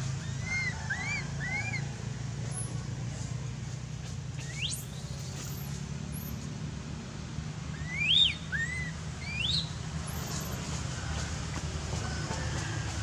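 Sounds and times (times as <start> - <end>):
high chirping calls: 4.4 - 6.4, 7.8 - 10.6.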